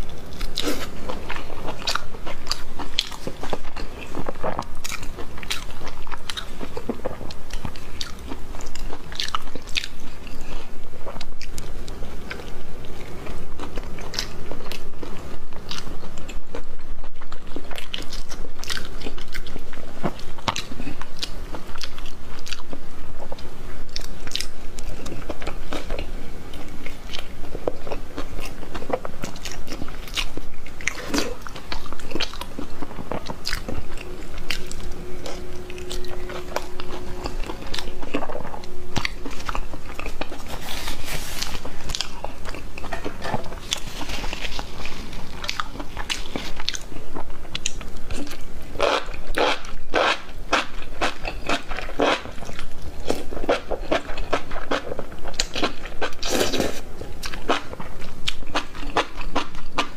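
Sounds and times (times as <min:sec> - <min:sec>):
person biting and chewing: 0:27.9 - 0:46.9.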